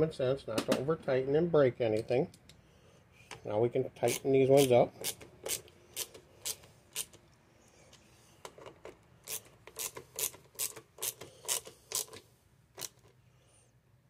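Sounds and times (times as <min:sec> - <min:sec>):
hand ratchet clicking: 0:04.0 - 0:07.2, 0:09.2 - 0:12.2, 0:12.8 - 0:13.0.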